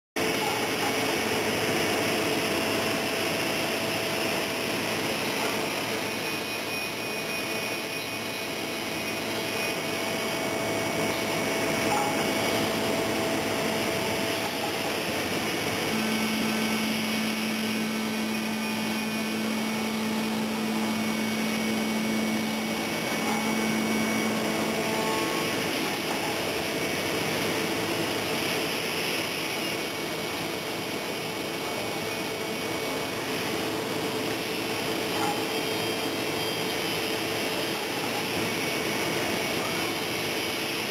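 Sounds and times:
woodworking machine whooshing: 0:00.3 - 0:30.0.

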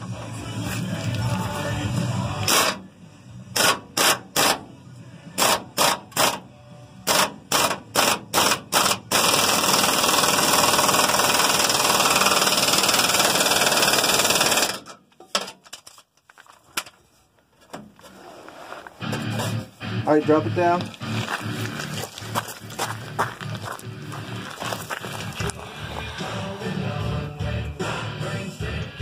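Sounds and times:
pneumatic impact wrench: 0:02.4 - 0:02.8, 0:03.5 - 0:04.7, 0:05.4 - 0:06.4, 0:07.0 - 0:15.0.

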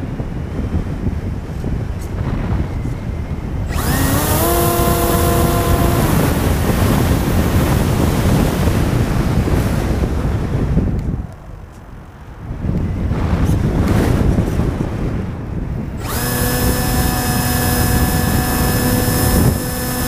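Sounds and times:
heavy wind rush: 0:00.0 - 0:20.0
propeller noise: 0:00.0 - 0:20.0
electric motor whine: 0:01.9 - 0:10.1, 0:16.0 - 0:20.0.

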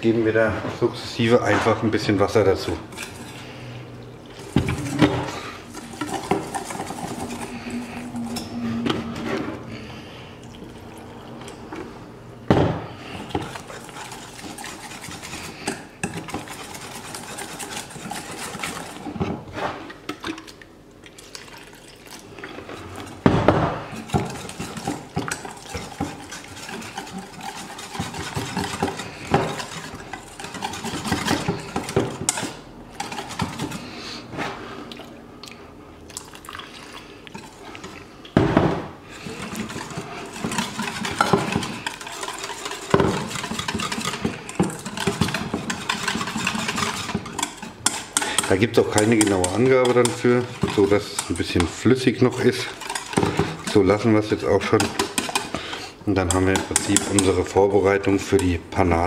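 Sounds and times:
whisk clinking in metal bowl: 0:13.1 - 0:19.3, 0:23.9 - 0:33.8, 0:39.2 - 0:59.0.

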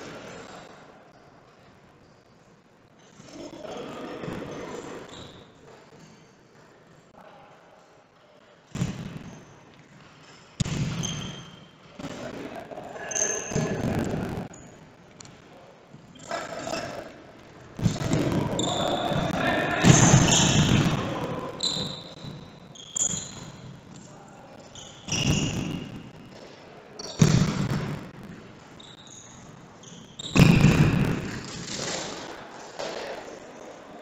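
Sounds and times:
shoe squeaks: 0:05.0 - 0:05.6, 0:11.0 - 0:11.8, 0:21.6 - 0:23.7, 0:24.6 - 0:26.0, 0:28.7 - 0:30.5
ball kicks and thuds: 0:10.6 - 0:11.3, 0:27.2 - 0:28.0, 0:30.3 - 0:31.4
voices: 0:17.9 - 0:22.0.

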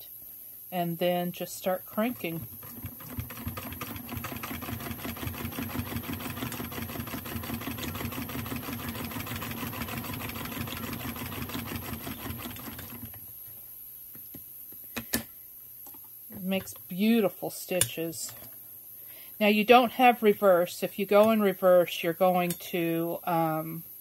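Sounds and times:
hand-crank sewing machine clatter: 0:02.0 - 0:13.2.

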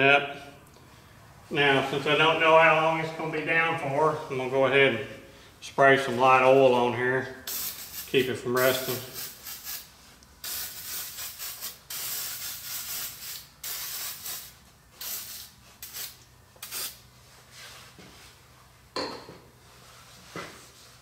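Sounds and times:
aerosol can spraying: 0:07.5 - 0:17.0.

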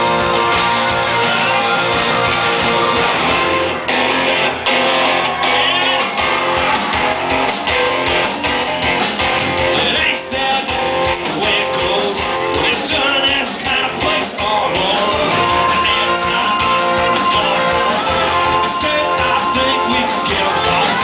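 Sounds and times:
steady drum beat: 0:00.0 - 0:03.7, 0:05.5 - 0:21.0
strummed electric guitars: 0:00.0 - 0:21.0
man singing: 0:05.4 - 0:06.2, 0:09.6 - 0:21.0.

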